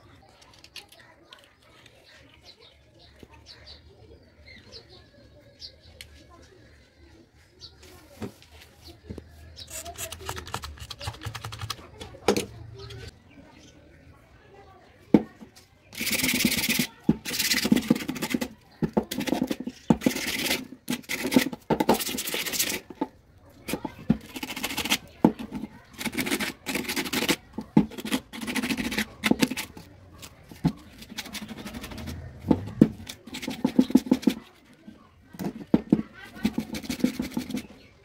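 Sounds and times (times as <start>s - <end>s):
sandpaper rubbing on metal: 16.0s - 18.4s, 19.4s - 22.9s, 30.9s - 32.3s.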